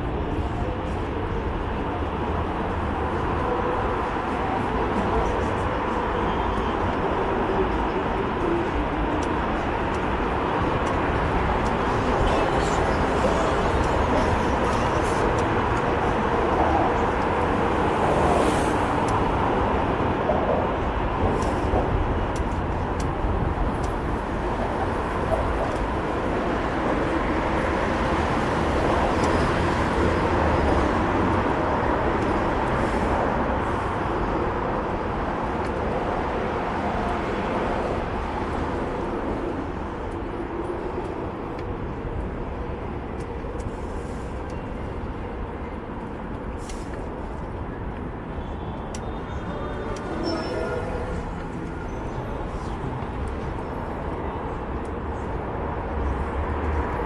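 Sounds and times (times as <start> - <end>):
motor traffic: 0.0 - 57.0.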